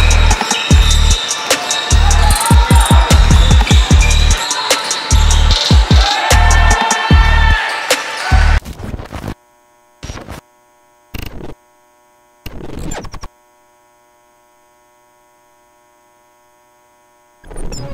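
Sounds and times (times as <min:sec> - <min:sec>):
glitchy digital static bursts: 0:10.0 - 0:10.4, 0:11.1 - 0:11.6, 0:12.4 - 0:13.3
faint electrical hum: 0:13.2 - 0:17.5.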